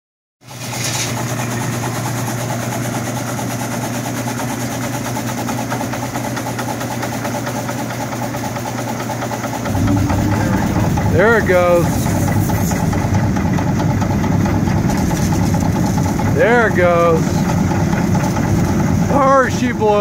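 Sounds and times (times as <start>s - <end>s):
pressure washer pump humming: 9.6s - 20.0s.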